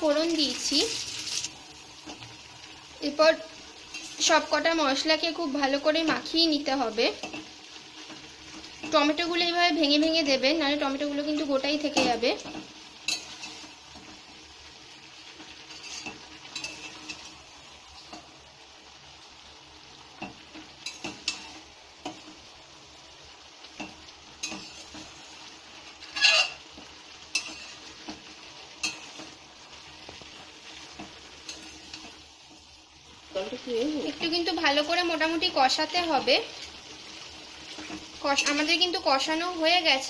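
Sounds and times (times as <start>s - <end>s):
faint sizzle: 0.0s - 40.0s
metal spatula scraping pan: 3.9s - 4.4s, 11.4s - 14.2s, 15.4s - 17.3s, 23.8s - 25.2s, 26.0s - 29.4s, 30.7s - 32.2s.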